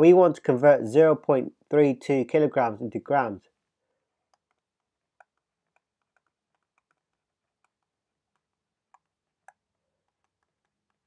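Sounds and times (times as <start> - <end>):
stylus tapping on tablet: 4.2 - 11.0.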